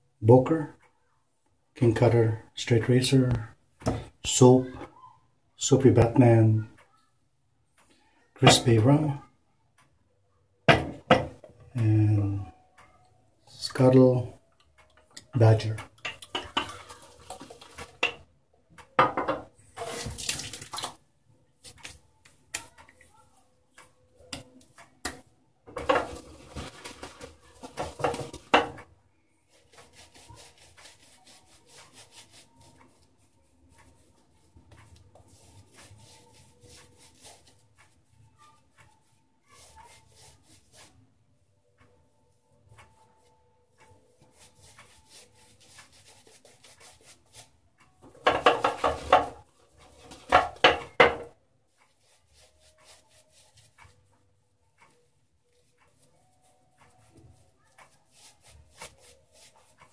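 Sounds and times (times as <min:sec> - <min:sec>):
shaving brush rubbing lather: 0:29.5 - 0:41.0, 0:44.2 - 0:47.5, 0:51.8 - 0:54.1, 0:55.0 - 0:59.9.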